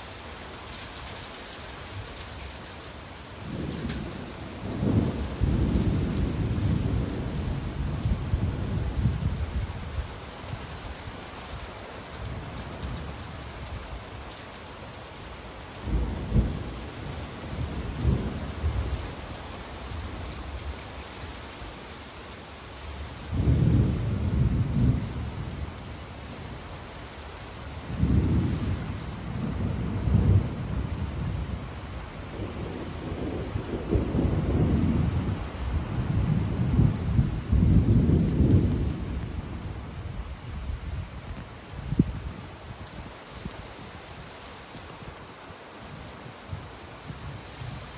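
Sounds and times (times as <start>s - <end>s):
steady rain: 0.0s - 47.9s
low thunder rumbles: 3.3s - 14.2s, 15.7s - 21.7s, 22.8s - 43.8s.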